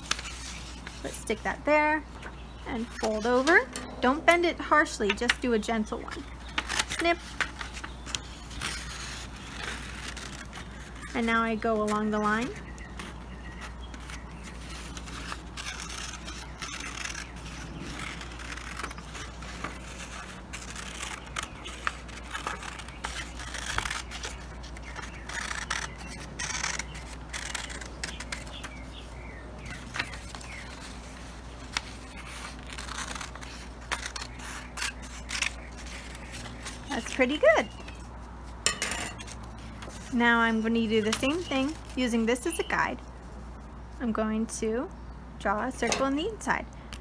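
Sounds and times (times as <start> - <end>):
steady low hum: 0.0 - 47.0
scissors cutting paper: 6.2 - 28.8, 29.6 - 38.0, 39.2 - 42.7.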